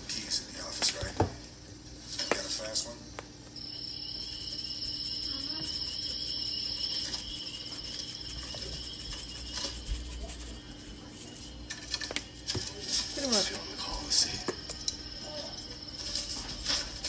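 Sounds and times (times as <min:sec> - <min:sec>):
high-pitched cricket-like trill: 0:03.6 - 0:11.6.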